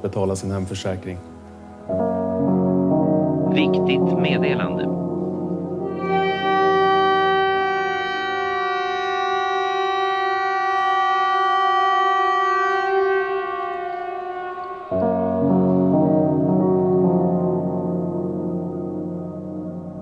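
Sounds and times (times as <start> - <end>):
droning music with gong notes: 1.3 - 20.0
warning siren steady tone: 3.3 - 16.8.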